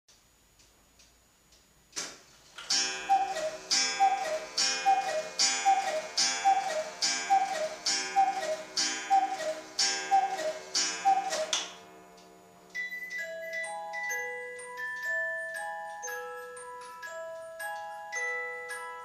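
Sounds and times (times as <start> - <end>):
two-note cuckoo call: 2.7 - 13.3
sustained ringing tones: 2.7 - 19.0.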